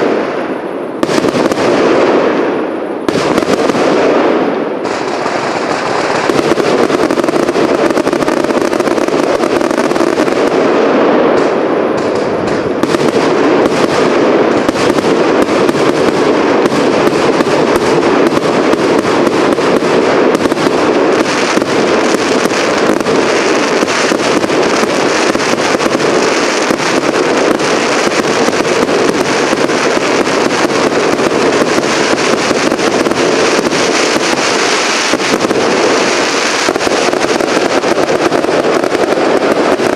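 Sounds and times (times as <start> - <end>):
firework bangs and crackles: 0.0 - 39.9
steady rushing noise: 0.0 - 39.9.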